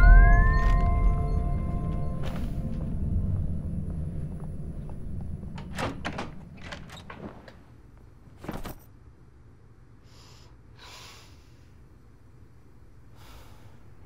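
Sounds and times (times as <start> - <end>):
door shutting: 0.5 - 7.8
door handle clicks and knocks: 5.6 - 7.2.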